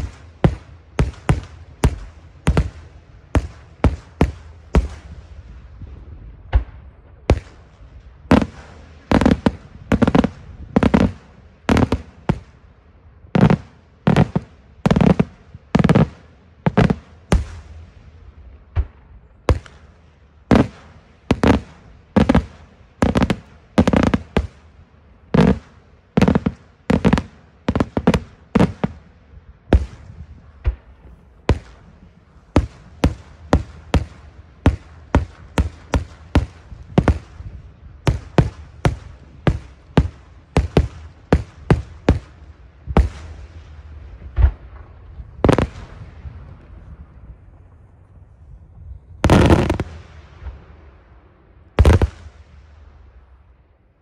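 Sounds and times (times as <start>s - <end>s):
fireworks shells bursting: 49.3s - 50.0s.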